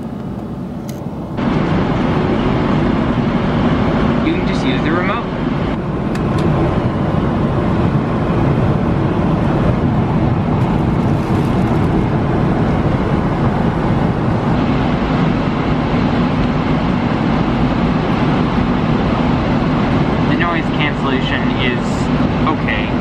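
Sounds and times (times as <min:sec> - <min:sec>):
airplane cabin noise: 0:00.0 - 0:23.0.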